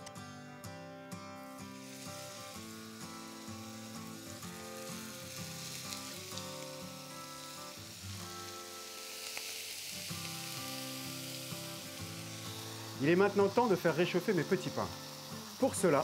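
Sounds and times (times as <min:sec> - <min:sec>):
background music: 0:00.0 - 0:16.0
burger patties sizzling in pan: 0:01.4 - 0:16.0.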